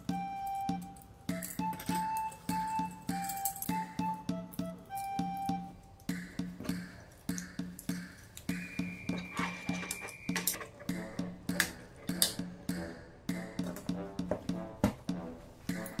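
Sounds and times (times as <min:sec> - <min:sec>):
bouncy background music: 0:00.0 - 0:16.0
plastic hanger parts clicking: 0:09.4 - 0:12.4.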